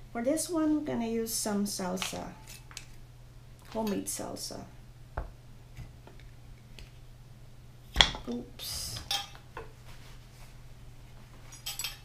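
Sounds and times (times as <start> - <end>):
glass jar and metal lid clinking: 11.5 - 12.0.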